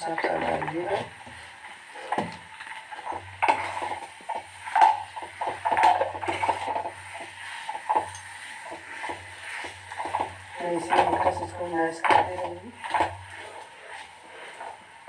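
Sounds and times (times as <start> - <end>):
food frying: 0.0 - 15.0.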